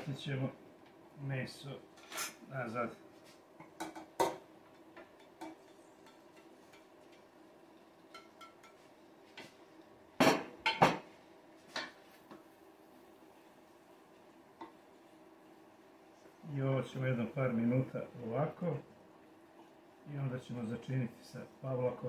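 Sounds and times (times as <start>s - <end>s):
wooden spoon stirring in pot: 2.9s - 9.9s, 11.1s - 17.8s
kitchenware clattering: 3.6s - 7.2s, 8.0s - 8.9s, 10.2s - 11.1s.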